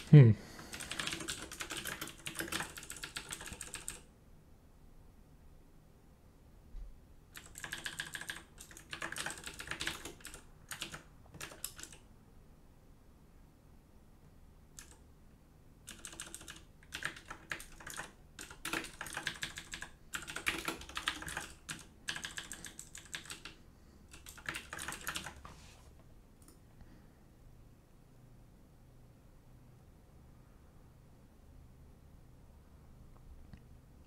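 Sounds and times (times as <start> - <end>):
typing on a keyboard: 0.6 - 4.1, 7.3 - 12.0, 14.8 - 15.0, 15.9 - 25.4.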